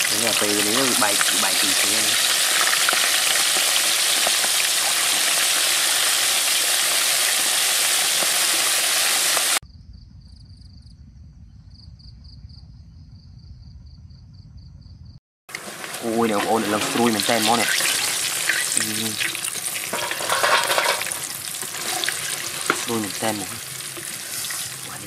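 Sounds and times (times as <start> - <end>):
fish sizzling in hot oil: 0.0 - 9.6, 15.5 - 25.0
insects trilling: 15.8 - 20.1.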